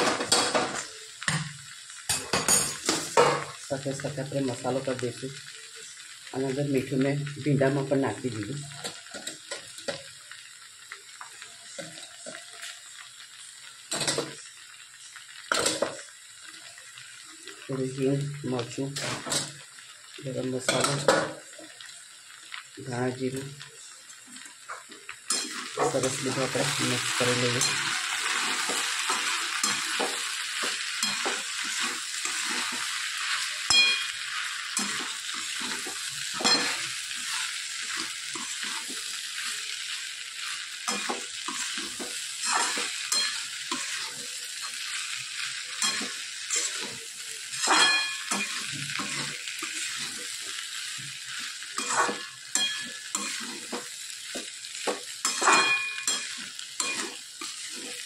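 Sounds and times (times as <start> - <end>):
vegetables sizzling in oil: 0.0 - 58.0
metal spatula scraping a pan: 25.3 - 39.8, 40.4 - 58.0.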